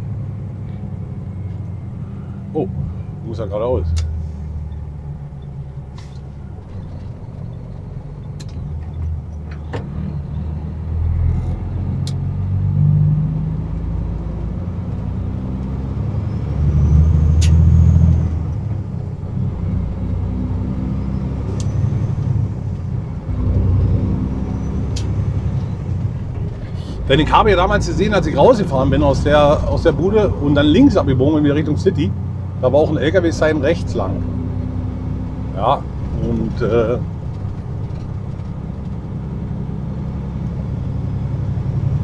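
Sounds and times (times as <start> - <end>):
truck diesel engine rumbling: 0.0 - 42.0
sharp clicks and knocks: 6.0 - 10.0.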